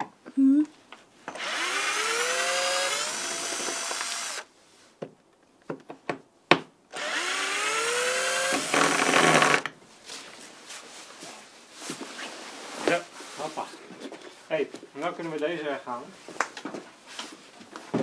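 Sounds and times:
power drill spinning up: 0:01.3 - 0:04.5, 0:06.9 - 0:09.7.

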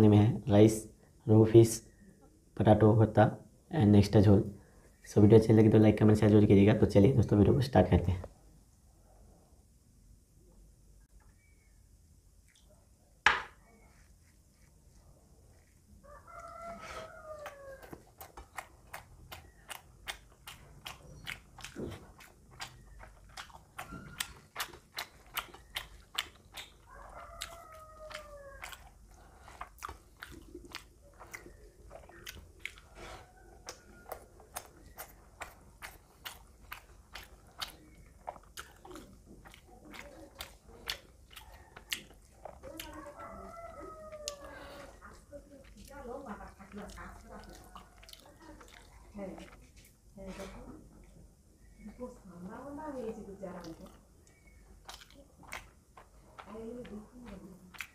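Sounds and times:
wet chewing and lip-smacking: 0:15.6 - 0:50.1, 0:53.0 - 0:57.9.

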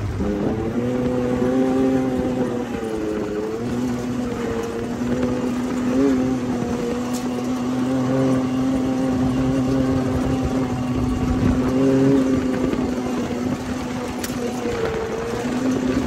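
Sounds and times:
utility vehicle engine running: 0:00.0 - 0:16.0.

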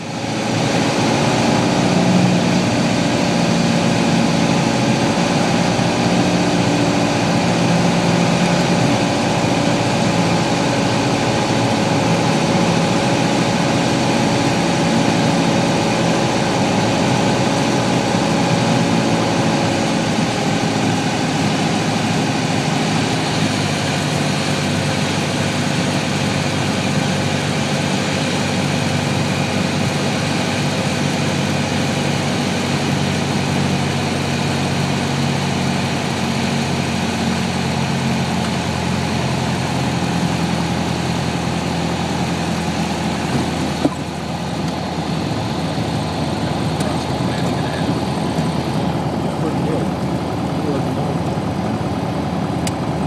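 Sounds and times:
aircraft engine and propeller droning: 0:00.0 - 0:53.0.

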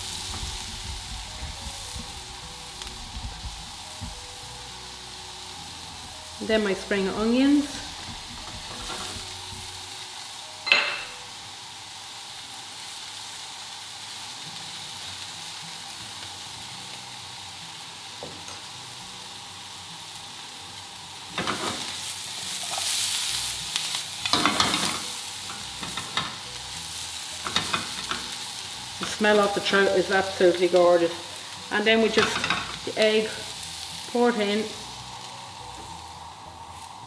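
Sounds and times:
food sizzling in a pan: 0:00.0 - 0:37.0
spatula scraping a pan: 0:07.7 - 0:09.8.

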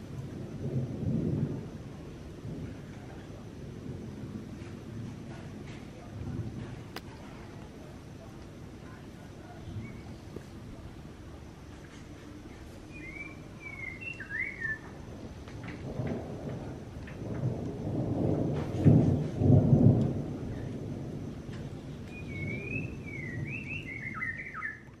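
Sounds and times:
songbird warbling: 0:12.5 - 0:14.9, 0:22.0 - 0:24.9.

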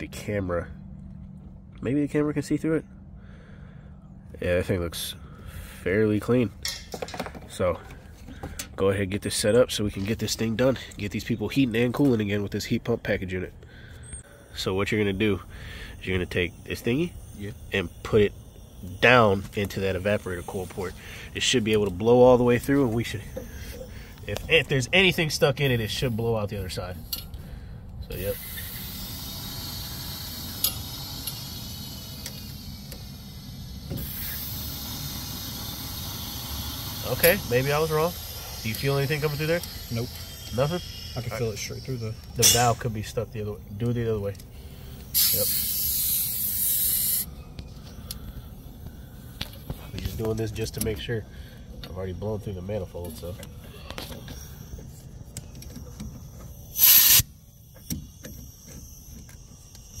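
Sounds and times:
steady low rumble: 0:00.0 - 0:55.3
nitrogen hissing through a line: 0:28.1 - 0:50.1, 0:56.7 - 0:57.3
blowgun air blast hissing: 0:33.7 - 0:37.0, 0:45.1 - 0:47.3, 0:56.8 - 0:57.3.

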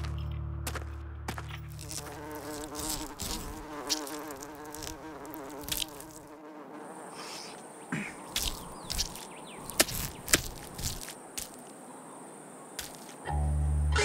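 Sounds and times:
fly buzzing: 0:01.7 - 0:11.7.

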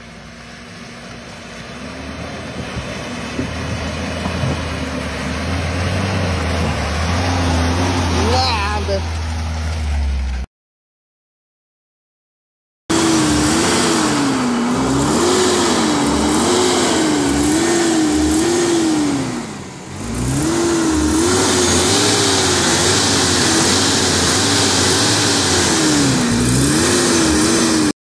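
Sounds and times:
engine revving hard: 0:03.8 - 0:09.0, 0:12.9 - 0:28.0.

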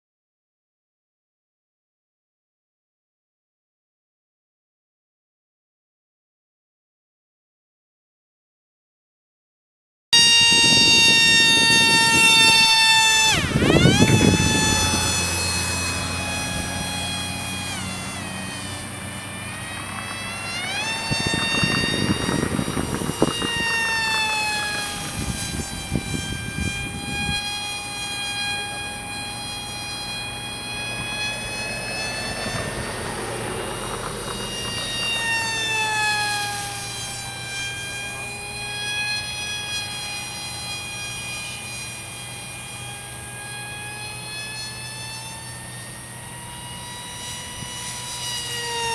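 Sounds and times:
model plane motor whining: 0:10.2 - 0:48.9.

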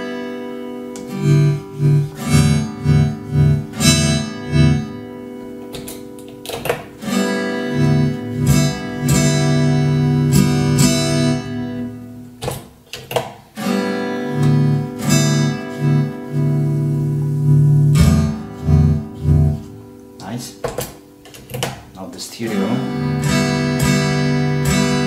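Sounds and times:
strummed acoustic guitar music: 0:00.0 - 0:25.0.

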